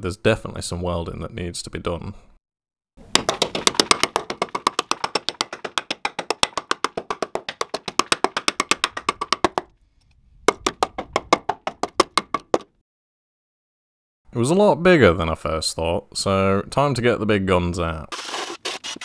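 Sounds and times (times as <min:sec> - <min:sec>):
fast woodblock-like taps: 0:03.2 - 0:09.7, 0:10.5 - 0:12.7.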